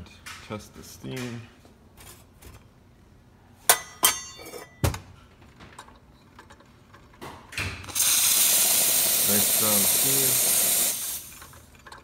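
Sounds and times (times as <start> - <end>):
sharp metallic clinks and knocks: 3.7 - 4.9
espresso machine steam wand hiss: 7.9 - 11.5.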